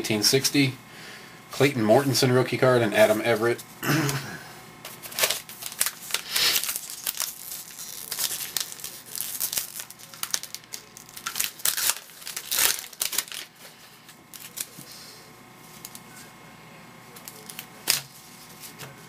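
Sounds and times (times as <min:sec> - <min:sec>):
cards rustling: 0:04.8 - 0:15.0, 0:15.6 - 0:16.3, 0:17.1 - 0:19.0
wrapper crinkling and tearing: 0:04.9 - 0:13.6, 0:14.3 - 0:14.8, 0:17.1 - 0:18.9.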